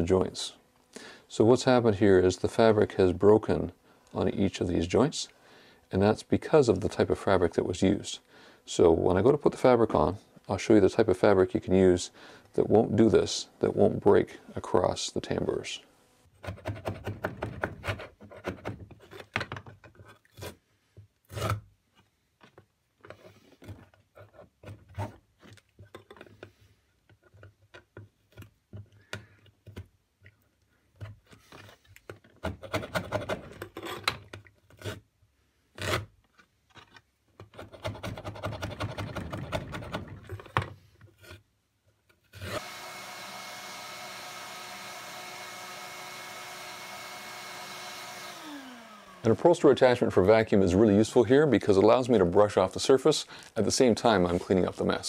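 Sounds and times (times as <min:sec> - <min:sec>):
metal scraper scraping wood: 0:16.3 - 0:21.7, 0:22.4 - 0:26.5, 0:31.0 - 0:35.1, 0:35.7 - 0:41.5, 0:42.1 - 0:42.8
vacuum cleaner running: 0:42.4 - 0:49.6.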